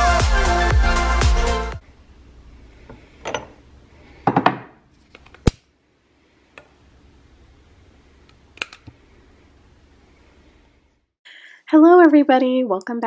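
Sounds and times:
glass jar clinking: 3.2s - 3.6s.

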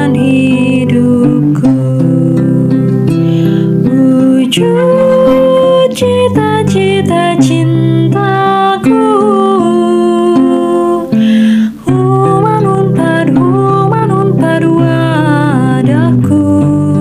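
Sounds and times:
woman singing slowly: 0.0s - 3.1s, 3.7s - 17.0s
instrumental accompaniment: 0.0s - 17.0s.

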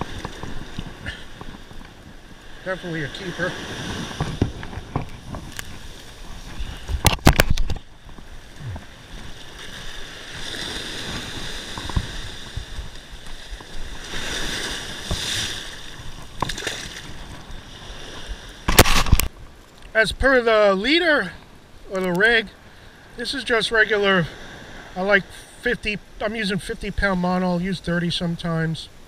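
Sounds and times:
ocean surf washing on beach: 0.0s - 29.0s.

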